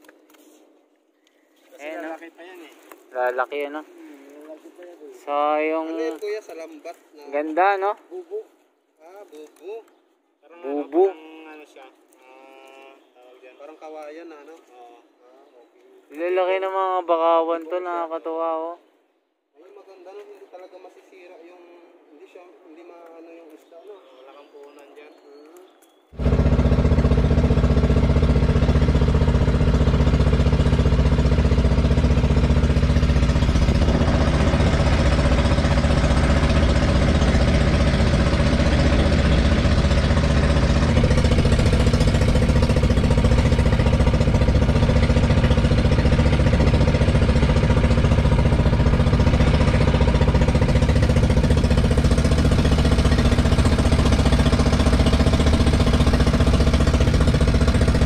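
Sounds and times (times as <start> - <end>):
boat engine drone: 26.2 - 58.0.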